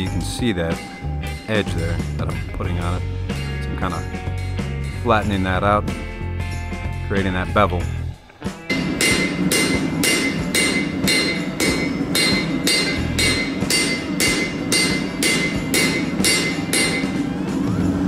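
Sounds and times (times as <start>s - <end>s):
hammer ringing on anvil: 0.0s - 5.4s, 8.7s - 17.4s
guitar music: 0.0s - 18.0s.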